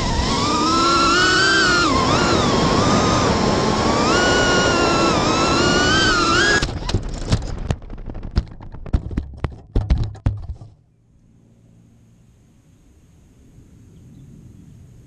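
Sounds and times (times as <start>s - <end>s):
quadcopter motors whining: 0.0s - 7.0s
quadcopter tumbling knocks and clicks: 0.0s - 10.9s.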